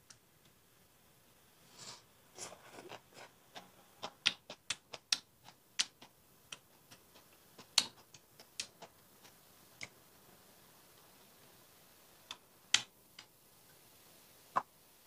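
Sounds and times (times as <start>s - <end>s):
crunchy chewing: 2.4s - 9.4s.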